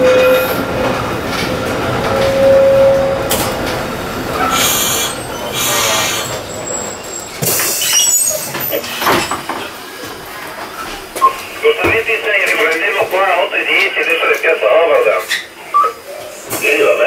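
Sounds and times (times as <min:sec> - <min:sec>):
tram clunks: 0:00.0 - 0:17.0
tram rolling on rails: 0:00.0 - 0:17.0
wheel or brake squeals: 0:04.4 - 0:09.3.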